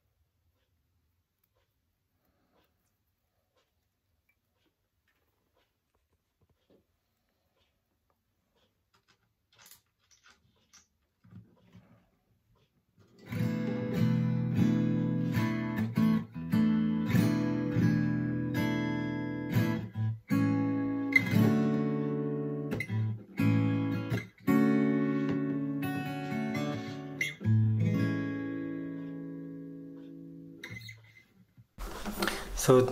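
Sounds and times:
acoustic guitar strummed chords: 0:13.2 - 0:30.8.

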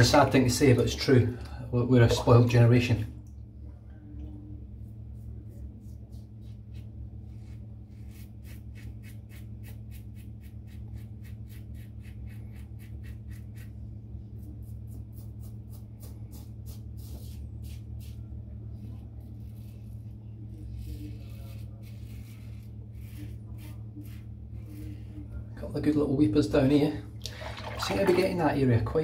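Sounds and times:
steady low hum: 0:00.0 - 0:29.0
razor scraping stubble: 0:07.9 - 0:18.2, 0:19.0 - 0:25.0.

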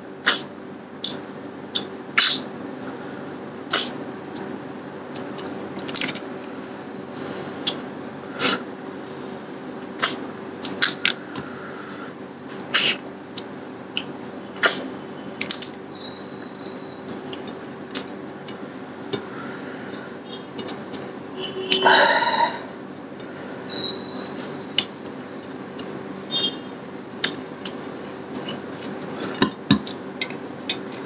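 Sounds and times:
wet lip smacks and chewing: 0:27.2 - 0:31.0.

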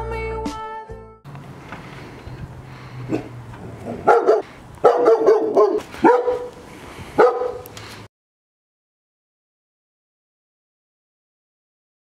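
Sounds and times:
dog barking: 0:03.1 - 0:03.3, 0:03.9 - 0:06.6, 0:07.2 - 0:07.7.

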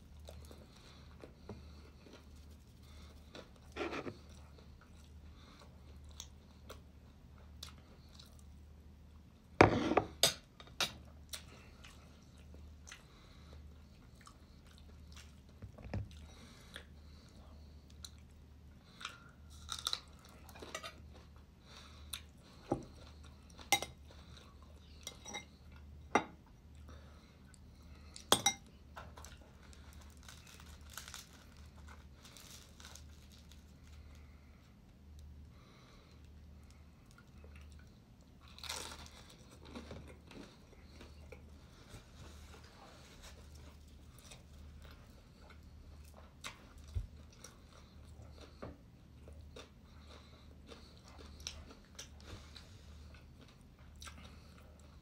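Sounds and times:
person chewing food: 0:11.2 - 0:55.0.

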